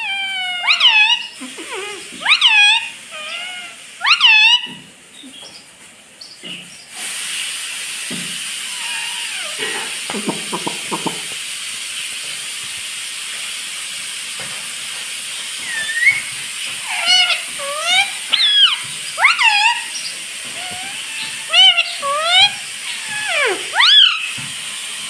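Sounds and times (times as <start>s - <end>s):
parakeet calling: 0.0s - 6.8s, 8.7s - 11.3s, 15.5s - 24.4s
steady hiss: 6.8s - 25.0s.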